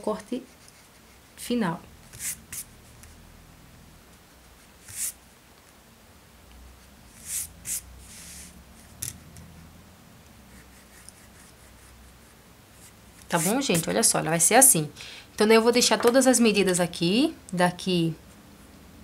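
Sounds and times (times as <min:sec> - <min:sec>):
eraser rubbing on paper: 0:02.1 - 0:02.8, 0:04.5 - 0:05.2, 0:07.1 - 0:08.9, 0:10.5 - 0:14.1.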